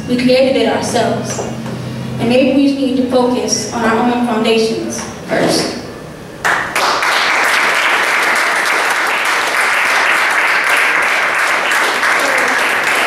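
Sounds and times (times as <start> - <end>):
audience applause: 6.4 - 13.0.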